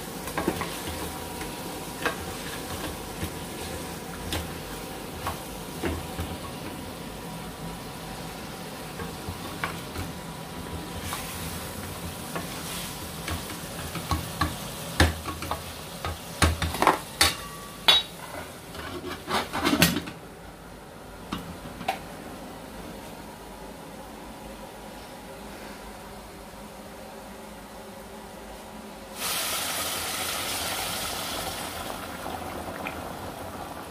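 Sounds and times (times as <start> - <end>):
curry sizzling in a pot: 0.0 - 19.6, 29.1 - 33.9.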